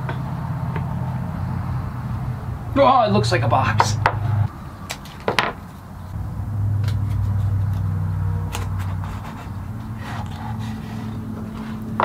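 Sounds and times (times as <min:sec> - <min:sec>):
steady low hum: 0:05.6 - 0:12.0.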